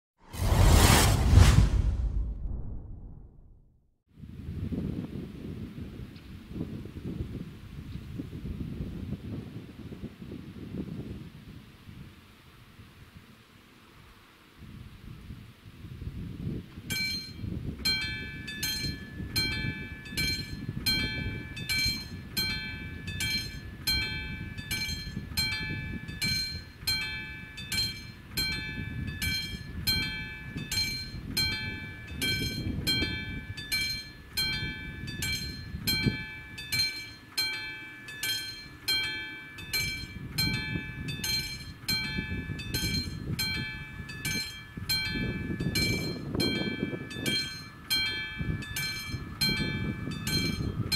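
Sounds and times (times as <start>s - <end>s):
wind rumble on microphone: 0.3s - 13.4s, 14.6s - 37.2s, 39.6s - 50.9s
level-crossing warning bell ringing: 16.9s - 50.9s.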